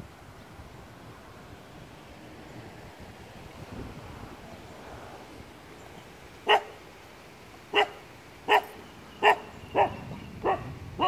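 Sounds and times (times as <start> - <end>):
dog barking: 6.5 - 6.7, 7.7 - 11.0.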